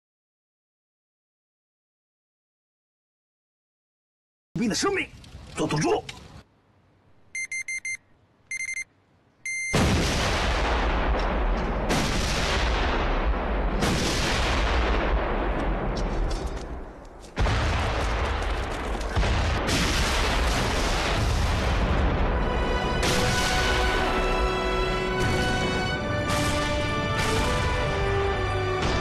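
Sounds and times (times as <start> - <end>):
explosions booming and rumbling: 9.7 - 24.5, 25.1 - 29.0
music: 22.3 - 29.0.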